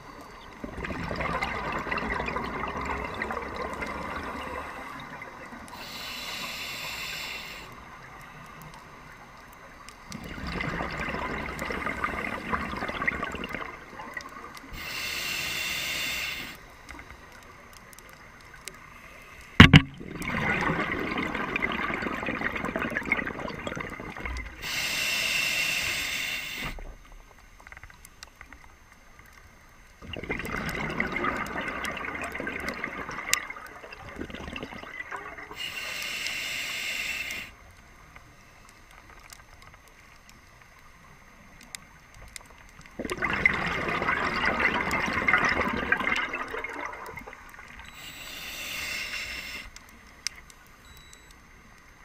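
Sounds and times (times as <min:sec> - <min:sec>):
exhaled bubbles rushing: 0:00.6 - 0:05.5, 0:10.1 - 0:14.5, 0:19.6 - 0:24.6, 0:30.0 - 0:35.6, 0:43.0 - 0:47.8
regulator breathing inhale hiss: 0:05.6 - 0:08.6, 0:14.6 - 0:17.0, 0:24.4 - 0:26.9, 0:35.5 - 0:37.7, 0:47.8 - 0:50.0.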